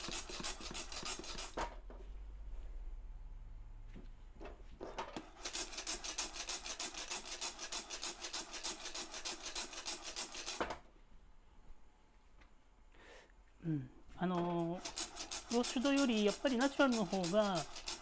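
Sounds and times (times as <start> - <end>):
coffee beans rattling in a saucepan: 14.8 - 18.0.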